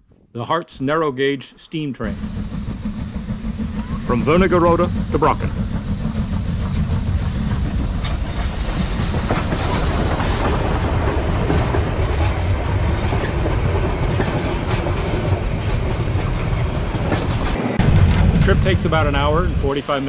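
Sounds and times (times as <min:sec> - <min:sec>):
steam train rolling past: 0:01.9 - 0:20.0
wheels clicking over rail joints: 0:02.1 - 0:17.6.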